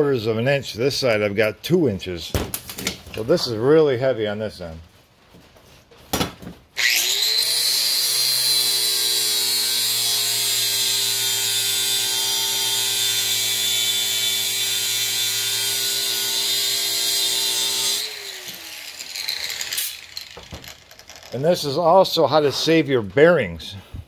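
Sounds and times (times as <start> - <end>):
angle grinder grinding steel: 6.8 - 21.4.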